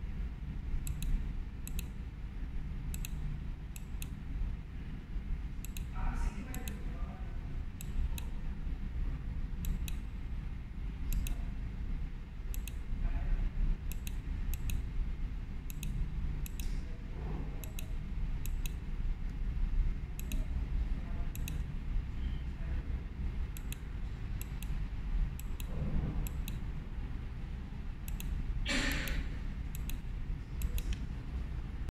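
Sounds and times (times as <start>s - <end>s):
steady low hum: 0.0s - 31.9s
mouse button clicking: 20.2s - 20.4s, 28.1s - 30.0s.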